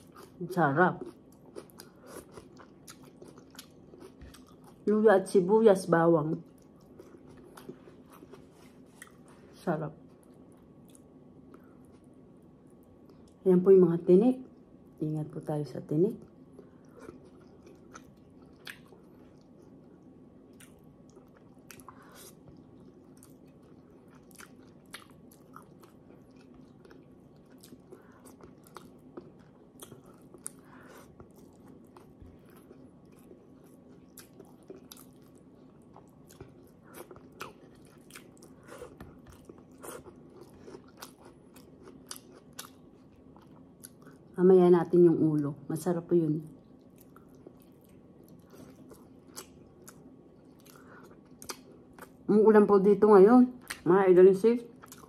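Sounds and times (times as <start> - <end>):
faint low hum: 0.0 - 55.0
person chewing: 1.0 - 4.8, 6.4 - 9.4, 10.2 - 13.4, 16.5 - 44.3, 46.6 - 52.2, 54.8 - 55.0.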